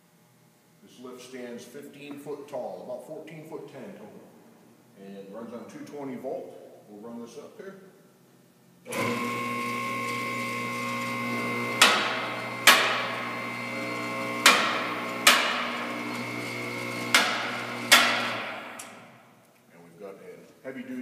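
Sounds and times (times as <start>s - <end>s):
hydraulic power unit humming: 8.8s - 19.1s.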